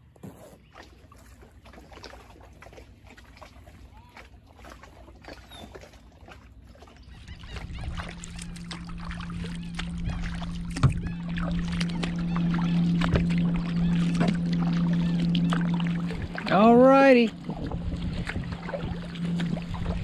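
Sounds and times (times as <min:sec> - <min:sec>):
paddle blades splashing: 0:00.0 - 0:20.0
steady low hum: 0:07.1 - 0:20.0.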